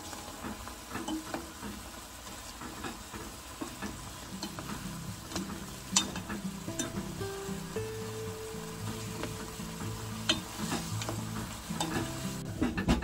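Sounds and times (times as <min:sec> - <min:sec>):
food sizzling in a pan: 0:00.0 - 0:13.0
utensil clicking against pan: 0:02.7 - 0:07.1.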